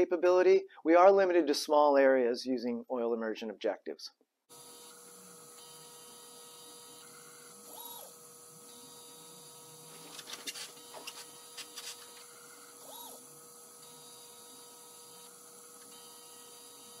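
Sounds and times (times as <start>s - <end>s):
stepper motor whine: 4.5s - 17.0s.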